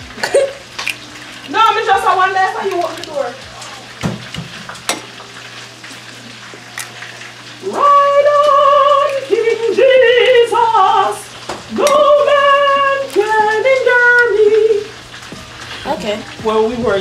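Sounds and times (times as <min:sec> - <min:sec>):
egg cracking against bowl: 0:00.0 - 0:05.6, 0:11.4 - 0:14.3
chicken frying in oil: 0:00.0 - 0:17.0
woman singing: 0:01.4 - 0:03.4, 0:07.6 - 0:16.4.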